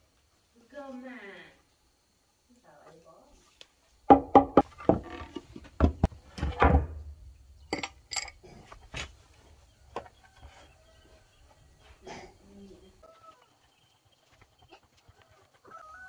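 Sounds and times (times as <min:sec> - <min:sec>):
metal tools knocking on wood: 0:04.1 - 0:07.0, 0:07.7 - 0:08.4
ringing metal clinks: 0:07.7 - 0:08.4.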